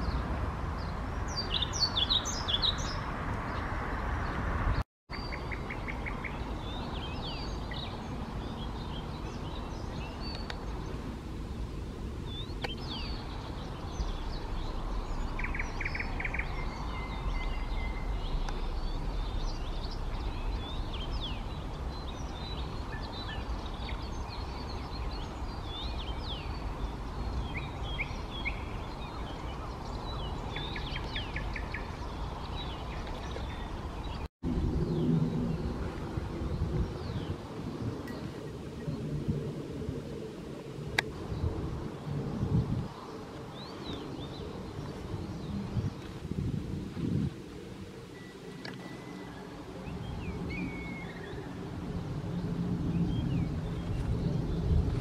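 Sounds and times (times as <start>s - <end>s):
songbirds singing and chirping: 0.0s - 55.0s
wind rushing: 49.6s - 55.0s.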